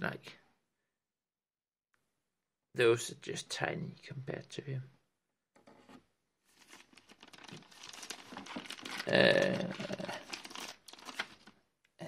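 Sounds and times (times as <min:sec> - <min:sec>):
packaging crinkling and rustling: 0:06.5 - 0:11.6.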